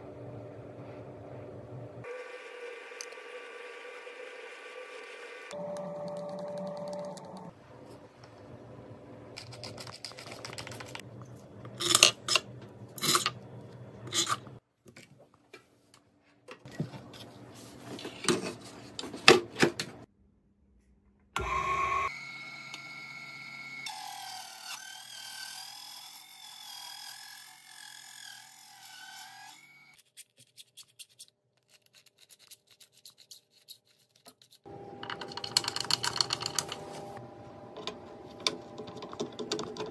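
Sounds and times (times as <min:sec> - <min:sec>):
rubbing and scraping: 0:09.4 - 0:11.0
table saw motor whining: 0:21.4 - 0:30.0.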